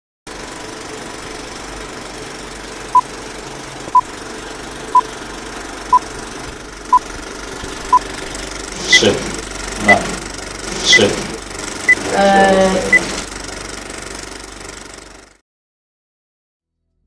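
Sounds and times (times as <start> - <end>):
film projector rattle and hiss: 0.3 - 12.0, 13.0 - 15.4
short high beeps: 9.9 - 10.1.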